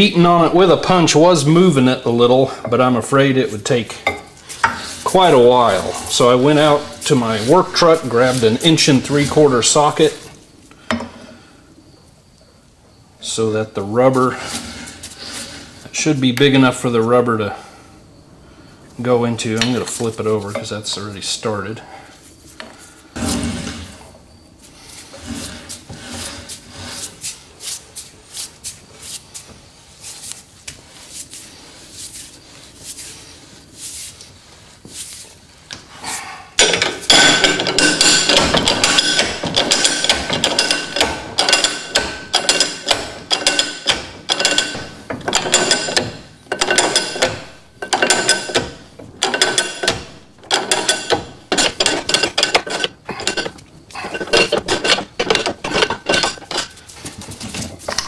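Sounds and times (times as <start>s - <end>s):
shop press creaking strokes: 3.6s - 10.4s, 23.2s - 24.0s, 25.0s - 27.8s, 36.6s - 56.9s
press squeaking: 36.6s - 56.8s.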